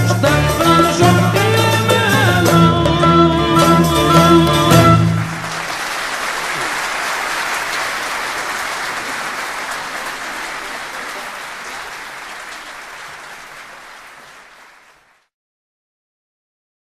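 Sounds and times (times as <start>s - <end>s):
audience applauding: 3.6s - 15.3s.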